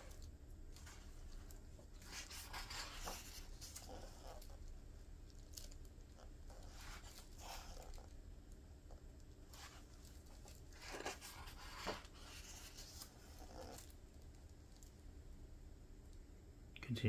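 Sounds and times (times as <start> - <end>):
book page turning: 0.0 - 4.6, 5.4 - 8.1, 9.5 - 14.0
hand brushing paper: 2.0 - 4.5.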